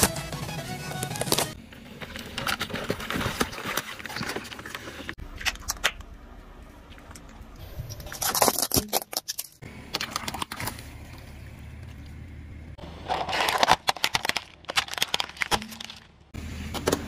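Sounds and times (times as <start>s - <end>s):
plastic crackling under car tyre: 13.0s - 16.3s.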